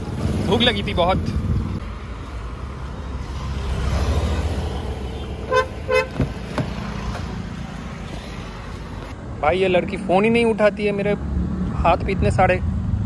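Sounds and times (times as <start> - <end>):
low road traffic rumble: 0.0 - 13.0
car horn toots: 5.2 - 6.3.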